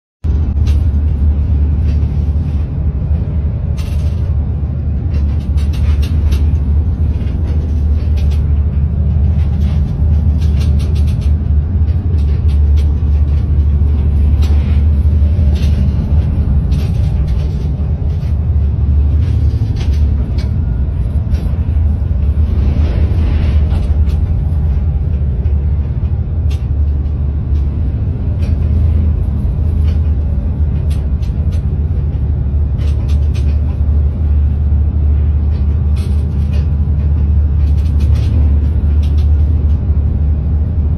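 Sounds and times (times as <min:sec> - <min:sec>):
boat engine droning: 0:00.3 - 0:40.9
rattles and knocks: 0:00.3 - 0:40.9.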